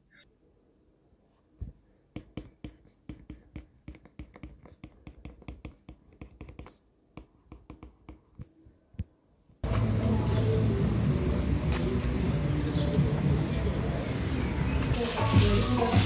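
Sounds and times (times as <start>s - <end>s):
stylus tapping on glass screen: 2.2s - 9.1s.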